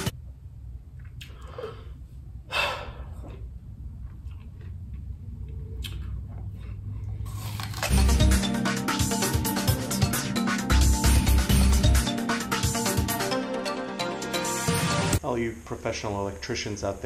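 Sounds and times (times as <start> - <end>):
person breathing: 1.3 - 3.3, 10.8 - 11.8
low background music: 7.4 - 15.2.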